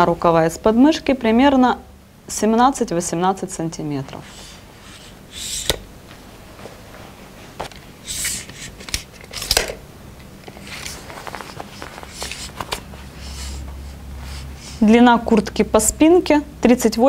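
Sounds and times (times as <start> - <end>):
jacket fabric rustling: 4.2 - 9.2, 10.3 - 14.9.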